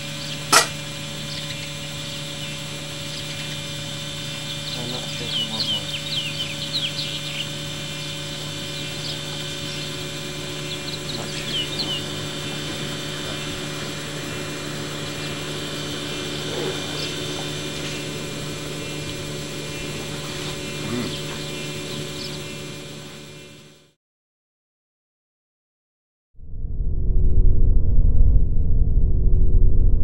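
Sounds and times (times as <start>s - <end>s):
high bird chirps: 0.0s - 23.6s
low hum of held tones: 0.0s - 23.9s.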